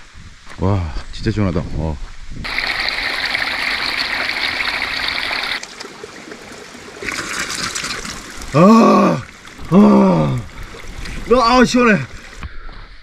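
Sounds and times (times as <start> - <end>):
spring water trickling over rocks: 2.4 - 12.4
faint running water: 2.4 - 12.5
hands splashing water onto face: 7.0 - 11.4.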